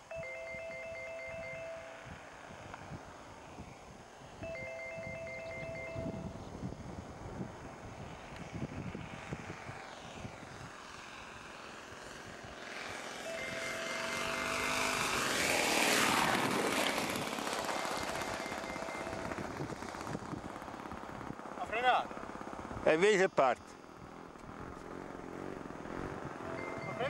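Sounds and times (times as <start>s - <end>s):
model airplane propeller and motor: 6.6s - 27.0s.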